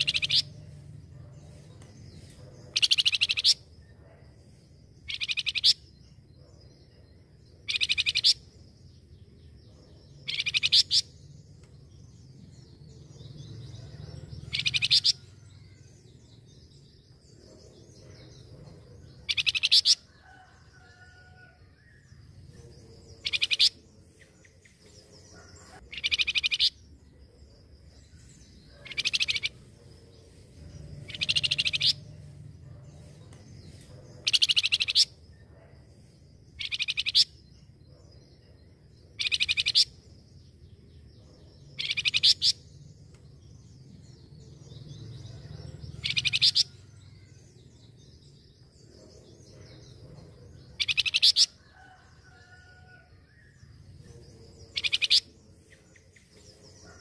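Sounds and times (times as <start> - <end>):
songbird trilling: 0.0 - 0.7, 1.3 - 3.7, 5.0 - 6.1, 7.6 - 8.5, 10.1 - 11.2, 13.3 - 15.2, 19.2 - 20.1, 23.1 - 23.8, 25.4 - 27.1, 28.4 - 29.8, 30.9 - 32.2, 33.7 - 35.2, 36.6 - 37.6, 39.1 - 40.0, 41.5 - 42.7, 45.7 - 47.5, 50.6 - 51.6, 54.6 - 55.4
faint bird chirps: 0.0 - 57.0.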